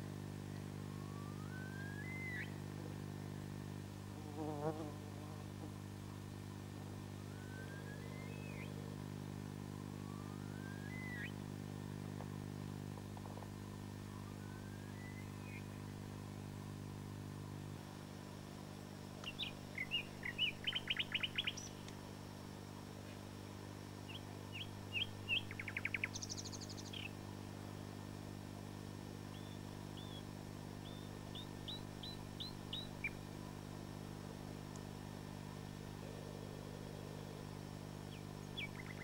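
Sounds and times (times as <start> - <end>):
low hum: 0.0 - 39.0
nightingale singing: 1.0 - 2.6, 7.3 - 8.8, 10.0 - 11.4, 14.1 - 15.8, 19.2 - 21.8, 24.1 - 27.2, 29.3 - 33.2, 38.1 - 39.0.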